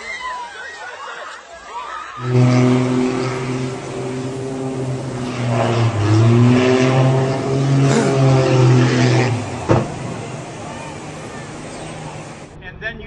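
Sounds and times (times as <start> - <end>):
propeller plane engine drone: 2.2 - 12.6.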